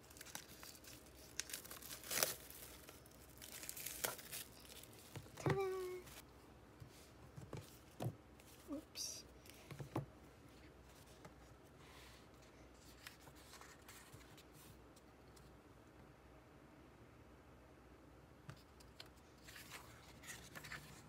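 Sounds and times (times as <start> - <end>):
paper rustling: 12.0 - 14.8, 19.0 - 21.0.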